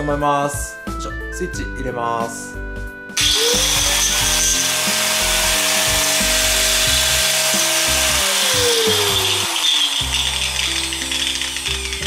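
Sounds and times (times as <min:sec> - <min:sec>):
angle grinder motor whine: 0:03.2 - 0:12.0
grinder gears rattling: 0:03.2 - 0:12.0.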